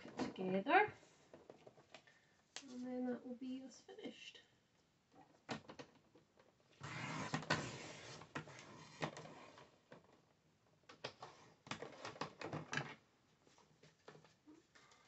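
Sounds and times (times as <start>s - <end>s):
card stock scraping and rustling: 6.8s - 9.6s.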